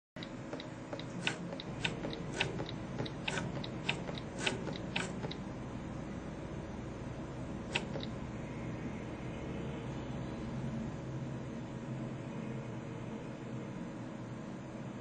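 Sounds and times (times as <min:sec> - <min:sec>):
stylus tapping touchscreen: 0:00.2 - 0:05.4, 0:07.7 - 0:08.2
faint steady hum: 0:00.2 - 0:15.0.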